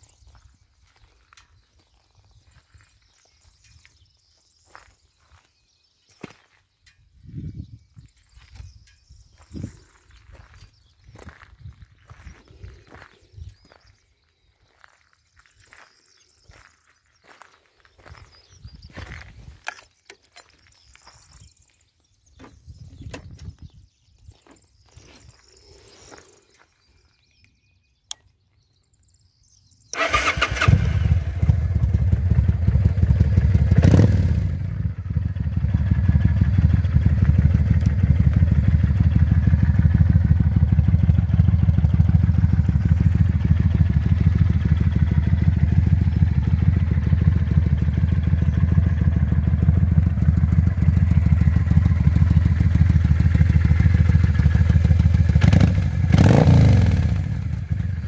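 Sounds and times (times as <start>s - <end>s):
motorcycle electric starter: 29.9s - 31.9s
motorcycle engine idling: 30.0s - 58.0s.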